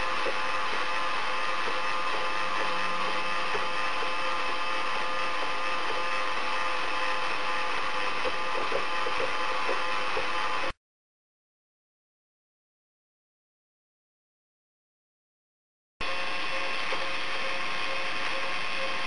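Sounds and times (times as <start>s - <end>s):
teleprinter motor whirring: 0.0s - 10.8s, 16.0s - 19.0s
light mechanical ticks: 8.2s - 10.4s.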